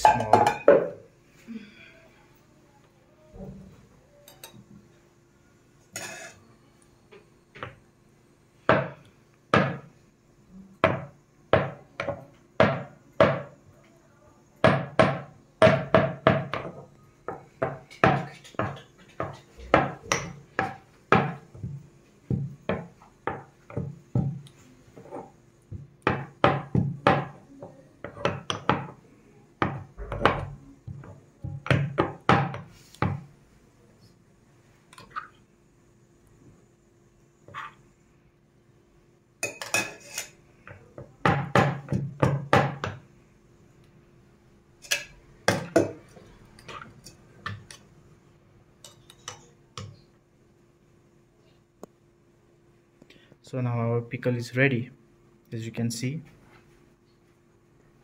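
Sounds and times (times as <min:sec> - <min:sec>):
stone pestle pounding in mortar: 0:14.7 - 0:16.7, 0:17.6 - 0:24.4, 0:25.8 - 0:27.4, 0:41.2 - 0:43.0.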